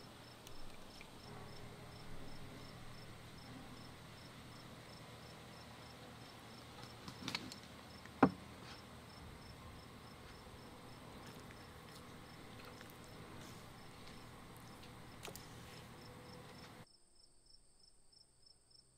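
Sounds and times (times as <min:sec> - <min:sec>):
cricket chirping: 0:00.0 - 0:18.9
sharp knock: 0:08.2 - 0:08.4.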